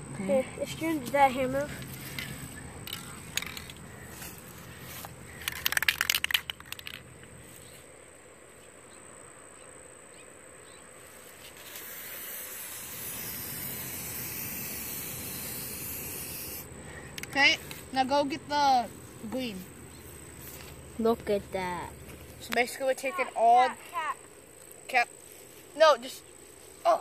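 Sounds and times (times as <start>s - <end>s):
spray paint can hissing: 11.6s - 17.4s.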